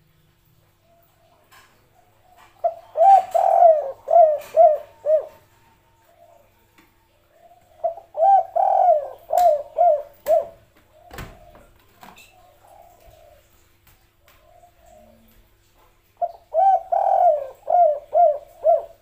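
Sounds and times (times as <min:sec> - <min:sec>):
dove cooing: 0:00.9 - 0:06.7, 0:07.3 - 0:13.7, 0:14.4 - 0:15.4, 0:16.2 - 0:19.0.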